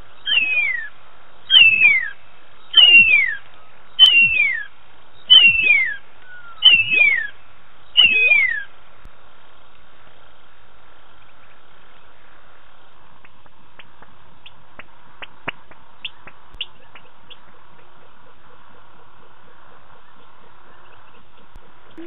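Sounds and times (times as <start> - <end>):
small animal chirps: 5.3 - 7.3, 8.0 - 8.7.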